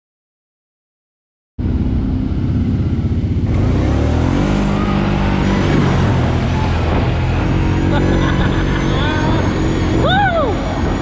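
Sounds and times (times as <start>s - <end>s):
quad bike engine revving: 1.6s - 11.0s
water splashing from tyres: 3.5s - 8.8s.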